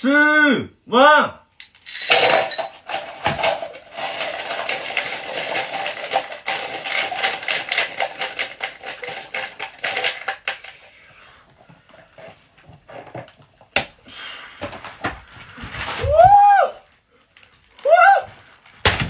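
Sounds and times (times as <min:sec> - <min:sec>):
candies rattling in plastic funnel: 0:02.1 - 0:10.8.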